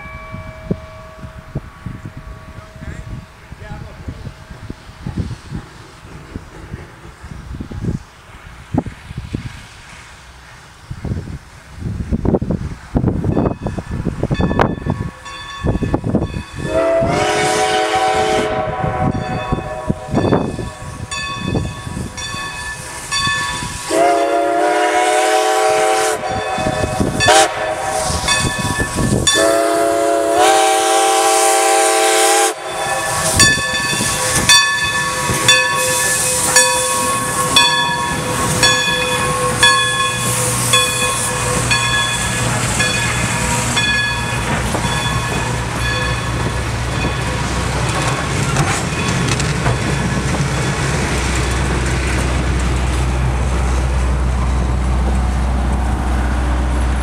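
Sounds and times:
crossing bell ringing: 0:00.0 - 0:04.7, 0:13.2 - 0:25.0, 0:26.2 - 0:51.8
train rumbling past: 0:00.0 - 0:57.0
steam locomotive whistle: 0:16.6 - 0:21.2, 0:23.5 - 0:43.9.

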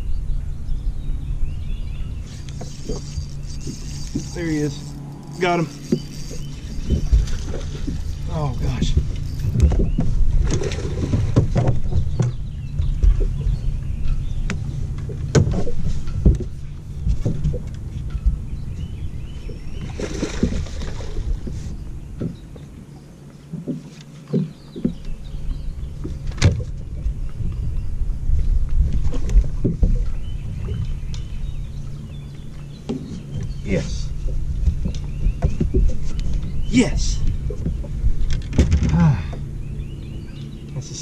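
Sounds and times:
wind buffeting microphone: 0:00.0 - 0:23.8, 0:24.4 - 0:40.6
clicks and knocks of fishing gear: 0:34.6 - 0:36.6, 0:37.5 - 0:39.0.

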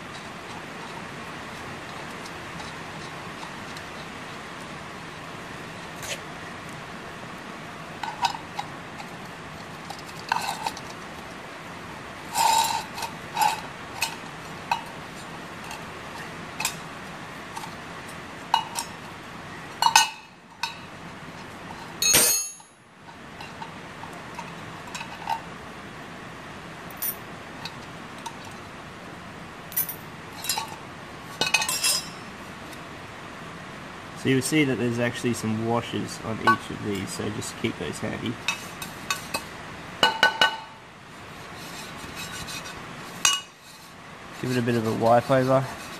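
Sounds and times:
metal parts clattering on concrete: 0:12.3 - 0:14.2, 0:22.0 - 0:22.8, 0:31.4 - 0:32.2.

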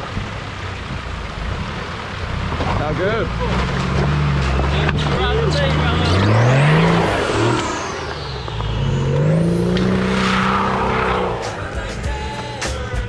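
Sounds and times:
water and stones splashing: 0:00.0 - 0:06.0
vehicle engine revving: 0:00.0 - 0:13.0.

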